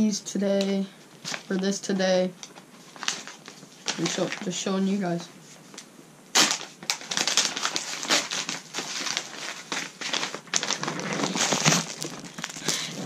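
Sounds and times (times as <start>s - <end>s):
plastic bag crinkling: 2.8s - 4.7s, 6.3s - 13.0s
scissors cutting plastic: 6.4s - 12.8s.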